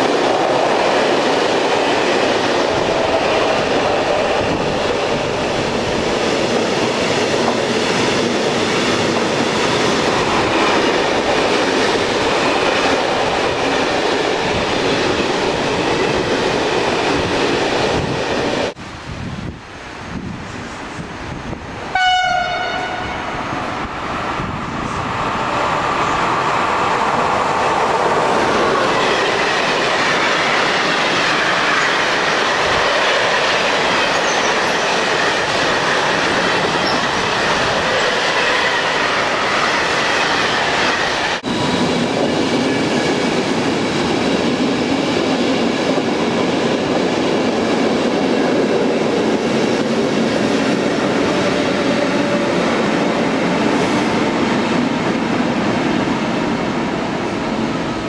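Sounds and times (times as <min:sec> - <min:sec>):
train wheels rolling on rails: 0:00.0 - 0:58.0
train horn blast: 0:21.9 - 0:23.5
clickety-clack over rail joints: 0:27.5 - 0:41.5.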